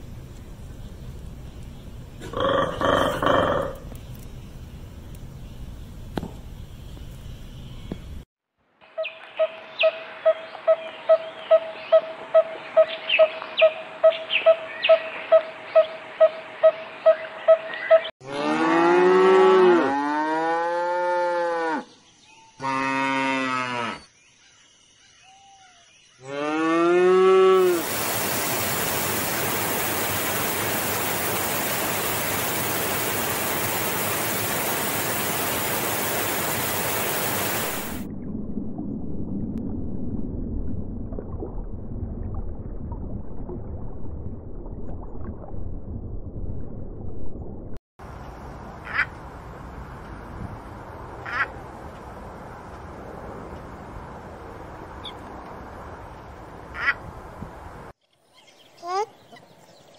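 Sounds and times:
cattle mooing: 22.6 - 24.0
loud rushing hiss: 27.7 - 38.0
low rumbling noise: 27.8 - 57.9.

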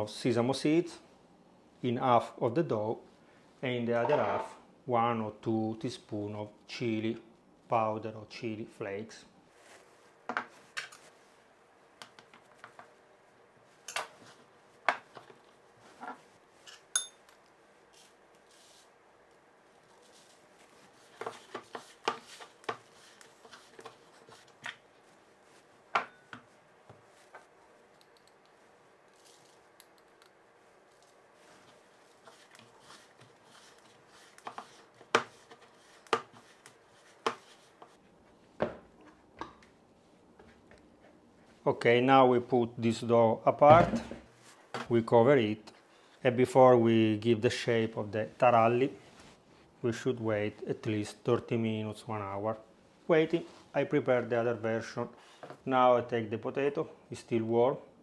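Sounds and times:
hands rubbing dough: 19.6 - 27.8, 30.5 - 38.2.

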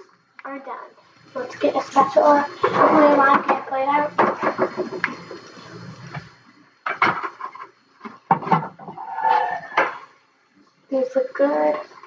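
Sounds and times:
spatula scraping metal baking sheet: 9.0 - 10.1.

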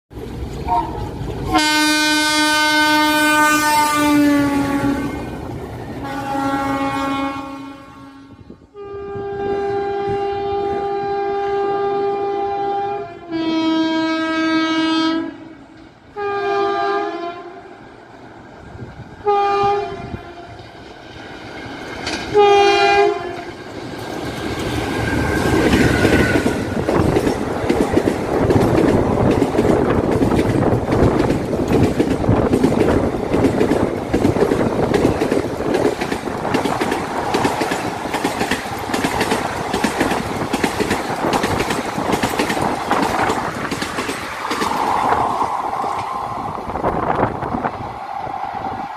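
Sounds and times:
train rolling rumble: 0.1 - 7.6, 17.6 - 48.9
train air horn blasts: 0.7 - 5.3, 6.0 - 17.7, 19.2 - 20.6, 22.3 - 23.6, 25.8 - 26.8
wheels clacking over rail joints: 20.6 - 46.8.

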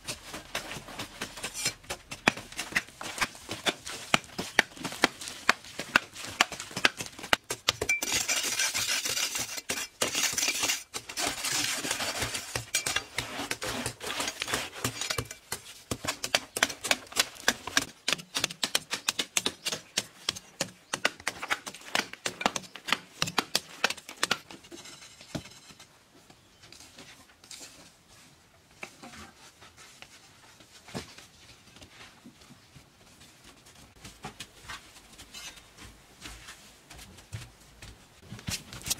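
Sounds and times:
digging tools striking hard earth: 0.0 - 25.7
scraping of loose dirt: 0.0 - 28.0.

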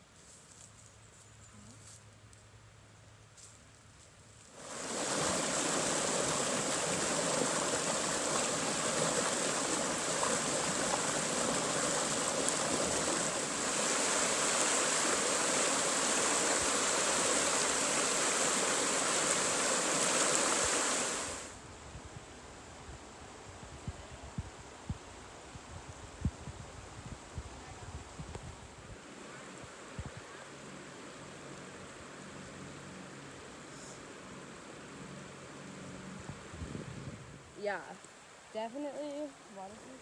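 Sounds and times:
river water rushing over rocks: 4.6 - 21.5.

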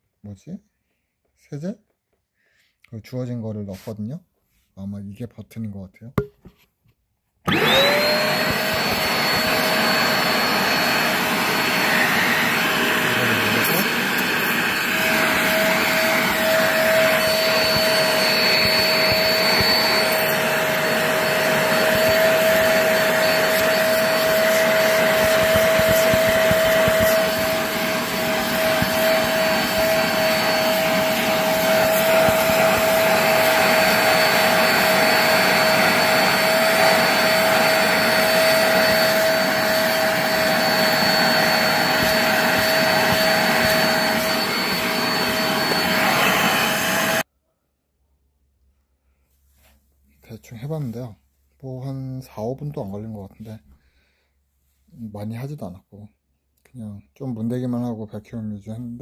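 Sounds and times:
spot cleaner suction motor whining: 7.5 - 47.2
brush nozzle on fabric: 7.6 - 47.2.

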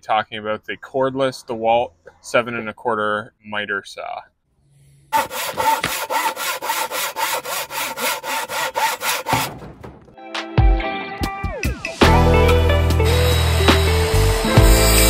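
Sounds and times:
hand saw cutting wood: 5.1 - 9.6, 13.6 - 15.0
thump: 9.3 - 10.2.

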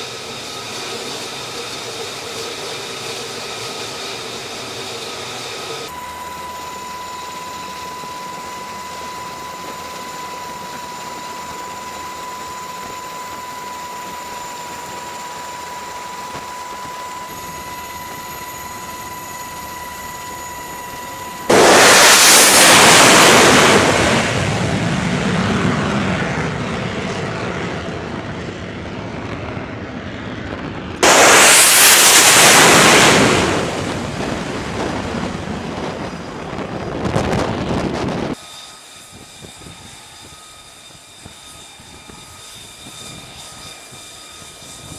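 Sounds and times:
high jet whine: 0.0 - 44.9
loud jet roar: 7.9 - 38.4.

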